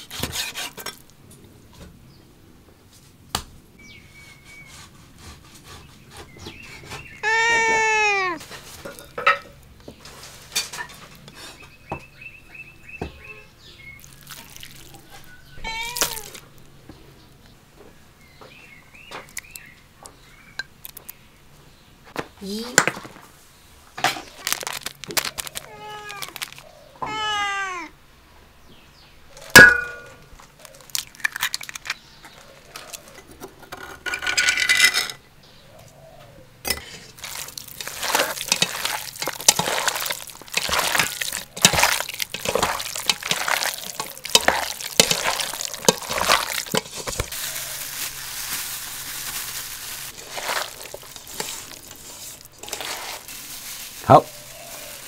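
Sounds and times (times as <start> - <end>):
cat meowing: 7.2 - 8.4, 15.6 - 16.4, 25.6 - 28.0
hands squelching raw meat: 14.0 - 16.5, 37.1 - 55.0.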